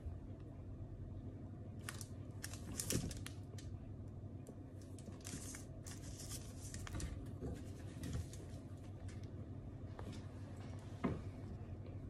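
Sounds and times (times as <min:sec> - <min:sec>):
crunchy food crackling and snapping: 0:01.8 - 0:07.4.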